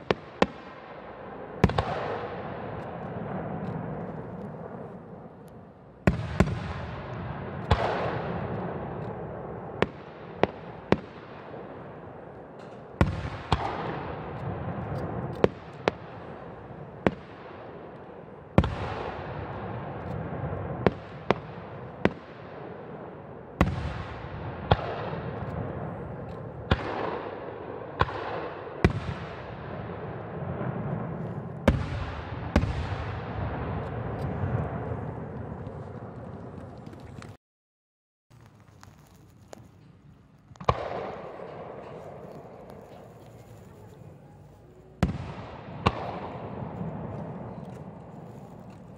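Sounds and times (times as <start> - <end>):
firework bangs echoing: 0.0 - 36.6, 40.6 - 44.0, 45.0 - 48.9.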